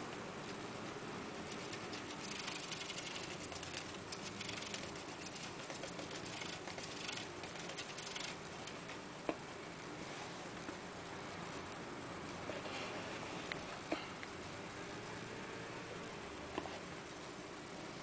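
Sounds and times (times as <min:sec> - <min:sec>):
gerbil scratching in paper: 0:01.4 - 0:08.9.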